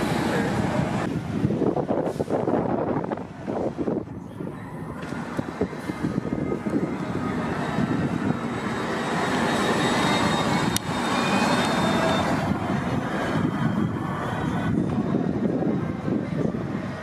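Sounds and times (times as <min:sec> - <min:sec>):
bus engine with rising whine: 0:00.0 - 0:17.0.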